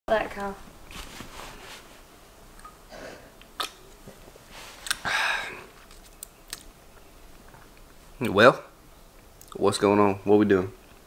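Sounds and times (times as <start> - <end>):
mouth and can clicks: 3.4 - 3.9
breathy exhale: 5.0 - 5.7.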